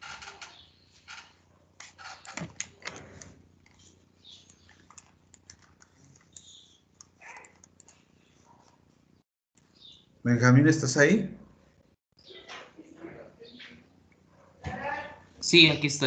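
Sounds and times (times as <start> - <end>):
faint clicks and taps: 1.8 - 8.8.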